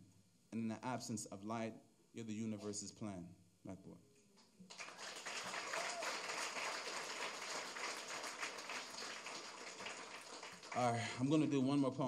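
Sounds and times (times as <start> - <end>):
audience applauding: 4.7 - 11.7.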